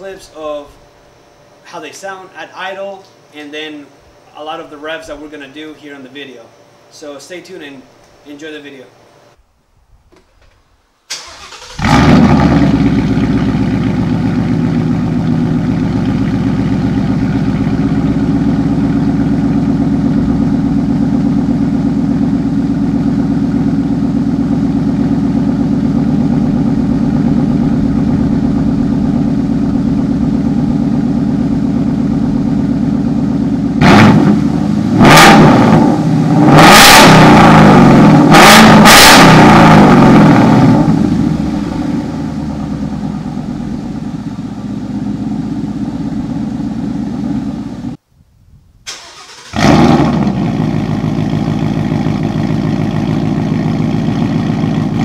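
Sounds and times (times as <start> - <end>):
car engine starting and idling: 11.1 - 48.0, 48.9 - 55.0
car engine revving: 11.2 - 48.0, 49.1 - 55.0.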